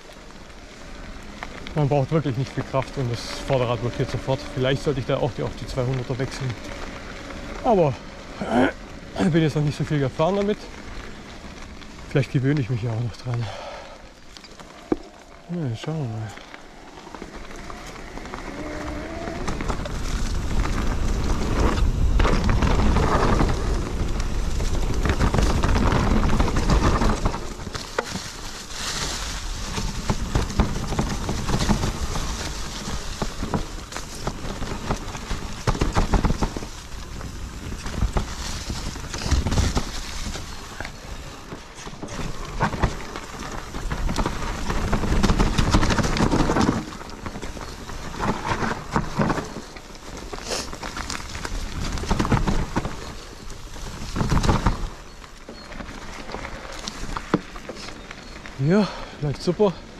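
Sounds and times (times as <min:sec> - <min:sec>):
bike rumbling and rattling on trail: 0:00.0 - 0:59.9
wind rushing over microphone: 0:16.1 - 0:49.4.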